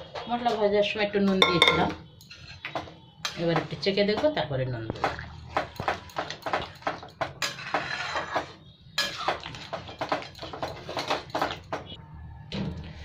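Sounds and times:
metal ladle scraping in a pan: 7.4s - 9.4s.

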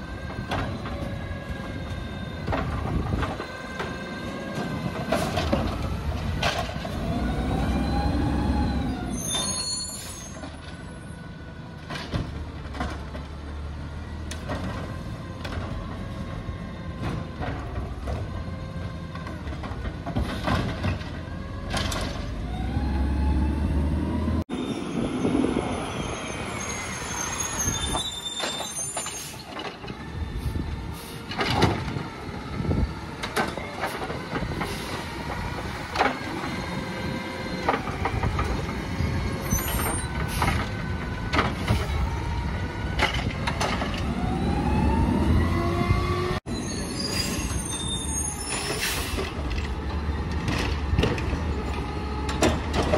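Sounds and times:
trash carts banging: 0.0s - 9.7s, 11.8s - 23.2s, 46.8s - 52.9s
air brakes hissing: 9.1s - 10.5s, 30.3s - 31.4s, 46.5s - 49.4s
garbage truck engine revving: 21.3s - 24.4s.

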